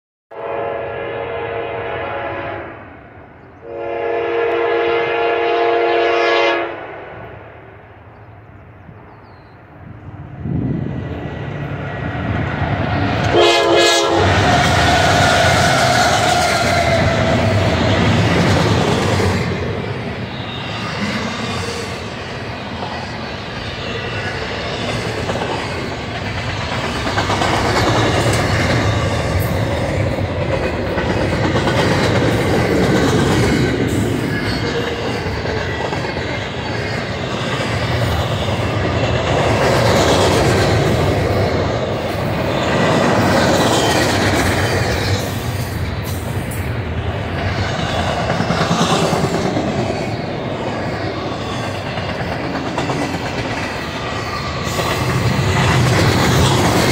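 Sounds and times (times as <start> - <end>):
train wheels on rails: 6.8 - 56.9.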